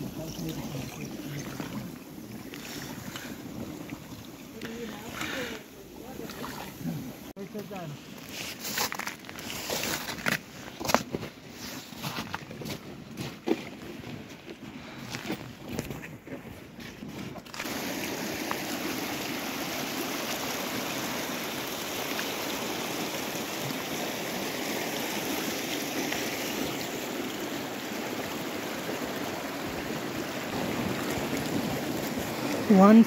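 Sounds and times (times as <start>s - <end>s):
river water rushing: 17.5s - 33.0s.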